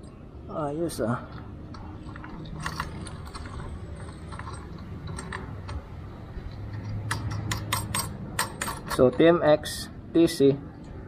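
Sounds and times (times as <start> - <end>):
metal clicks of hand tools: 6.4 - 9.2.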